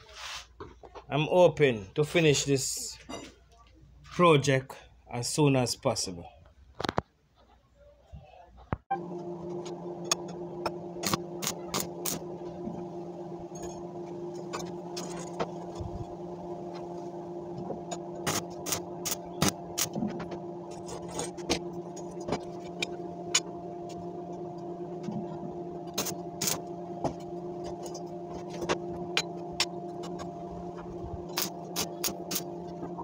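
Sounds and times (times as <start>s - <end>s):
electrical hum: 8.9s - 33.0s.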